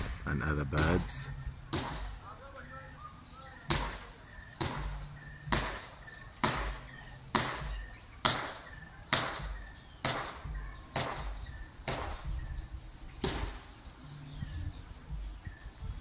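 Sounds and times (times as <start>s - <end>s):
sharp knocks: 0.0s - 2.2s, 3.7s - 12.4s, 13.2s - 13.7s.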